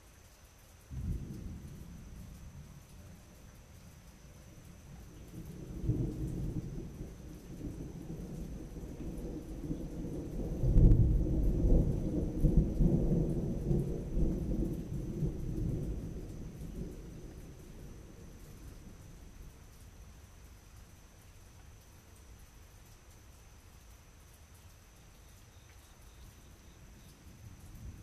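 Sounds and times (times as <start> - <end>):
rolling thunder: 0.9 - 19.6.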